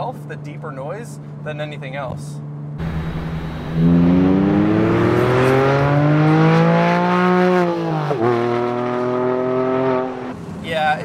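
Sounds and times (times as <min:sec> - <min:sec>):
car engine accelerating hard: 0:02.8 - 0:10.4.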